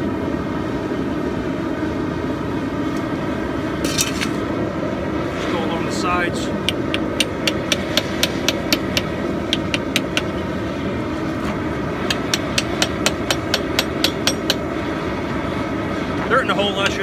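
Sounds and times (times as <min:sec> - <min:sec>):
hammer striking chisel: 0:06.7 - 0:10.3, 0:12.0 - 0:14.6.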